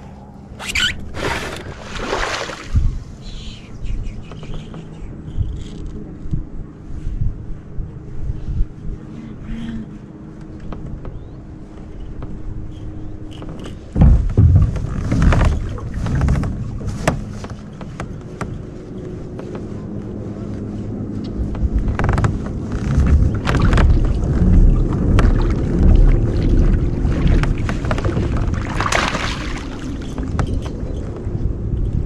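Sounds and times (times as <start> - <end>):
wind rumbling on microphone: 0.0 - 32.0
gear knocking against hull: 13.2 - 18.8, 21.5 - 32.0.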